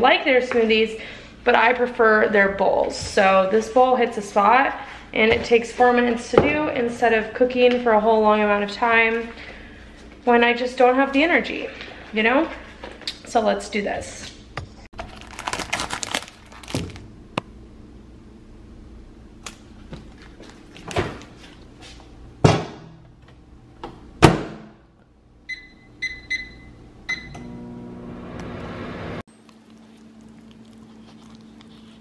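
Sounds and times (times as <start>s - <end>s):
packaging crinkling: 15.0s - 17.1s
microwave oven humming: 15.0s - 24.3s, 25.0s - 32.0s
microwave keypad beeps: 25.5s - 27.5s.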